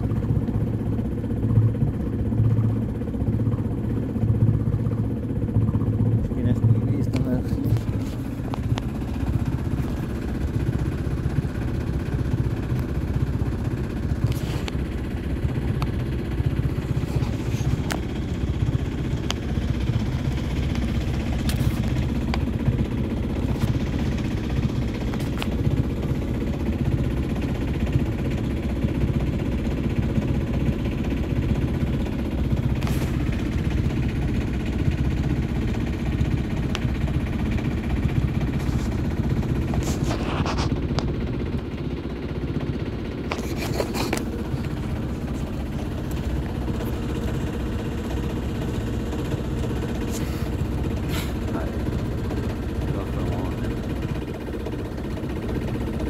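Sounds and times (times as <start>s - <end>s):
boat engine droning: 0.0s - 56.0s.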